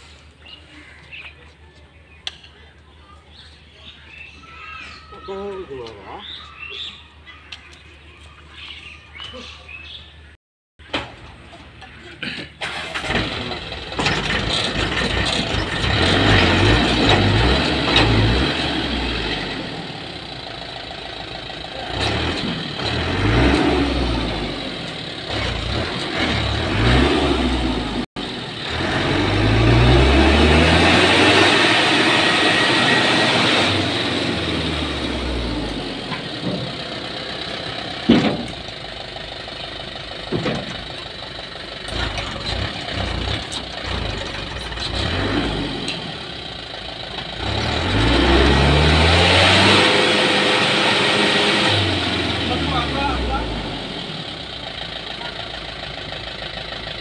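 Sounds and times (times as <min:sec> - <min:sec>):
diesel truck engine revving: 0:12.6 - 0:57.0.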